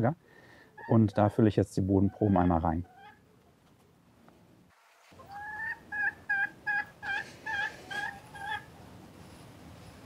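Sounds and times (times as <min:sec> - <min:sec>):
chicken calling: 0:02.0 - 0:03.4, 0:05.1 - 0:08.9.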